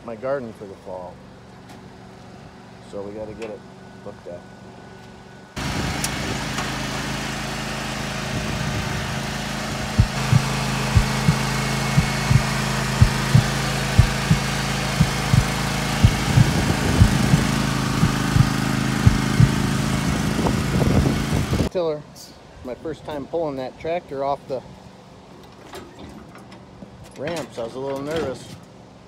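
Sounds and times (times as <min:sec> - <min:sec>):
lawn tractor engine running: 0:05.6 - 0:21.7
short low thumps: 0:09.9 - 0:19.7.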